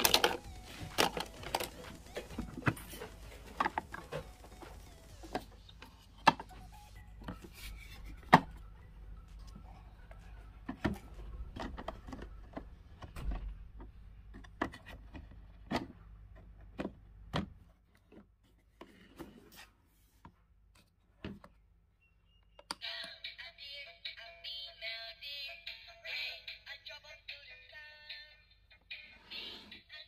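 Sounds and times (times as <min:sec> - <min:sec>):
toy electronic tune: 0:00.0 - 0:05.8.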